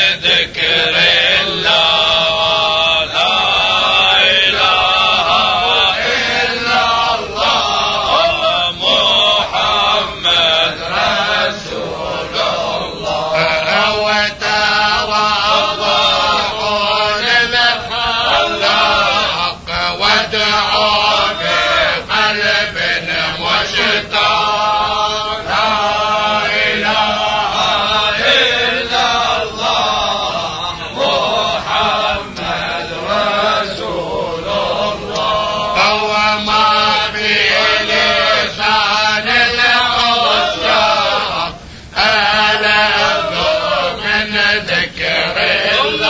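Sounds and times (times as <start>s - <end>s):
men chanting: 0.0s - 46.0s.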